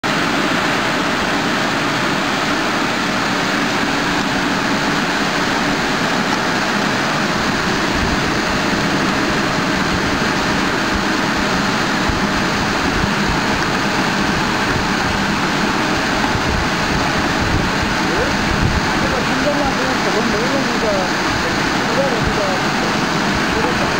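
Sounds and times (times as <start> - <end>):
bottle filling machine running: 0.0 - 23.9.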